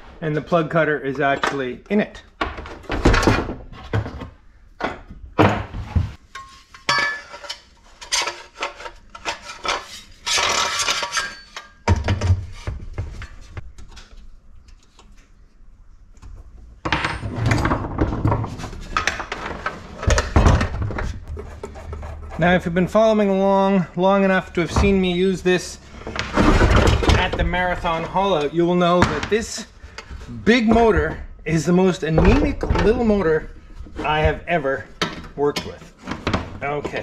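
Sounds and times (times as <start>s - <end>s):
metal parts clanking and knocking: 16.8s - 22.1s, 26.0s - 29.4s.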